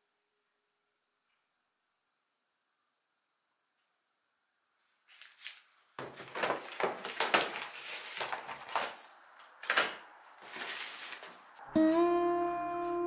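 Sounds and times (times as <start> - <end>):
newspaper rustling and crinkling: 4.8 - 11.6.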